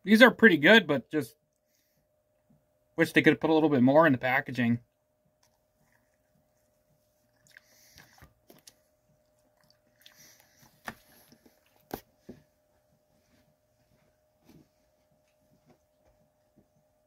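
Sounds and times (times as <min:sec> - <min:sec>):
person chewing: 0:05.4 - 0:06.6, 0:07.2 - 0:12.0
wet mouth smacks and clicks: 0:07.4 - 0:08.8.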